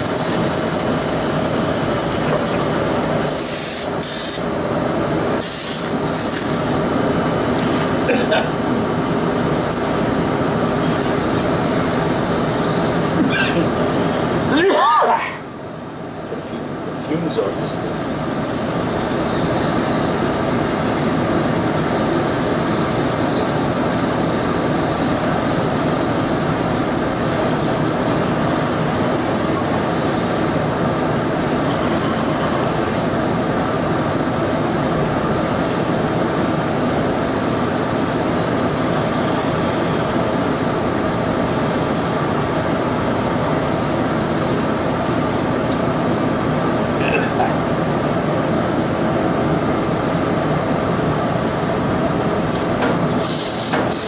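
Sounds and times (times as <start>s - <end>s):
aerosol spray hissing: 52.5s - 54.0s.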